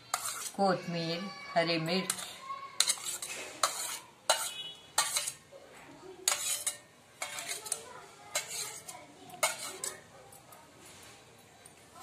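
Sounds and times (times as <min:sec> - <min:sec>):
metal spoon scraping steel bowl: 0:00.0 - 0:05.5, 0:06.2 - 0:10.1.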